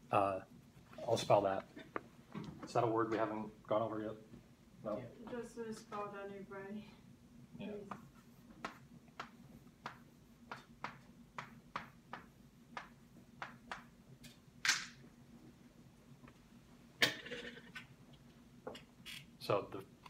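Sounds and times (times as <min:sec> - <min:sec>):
chalk tapping on chalkboard: 0:07.9 - 0:13.9.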